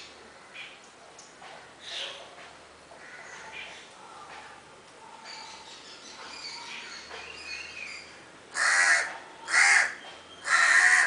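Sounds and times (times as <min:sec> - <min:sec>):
crow cawing: 0:03.0 - 0:03.4, 0:08.5 - 0:11.0.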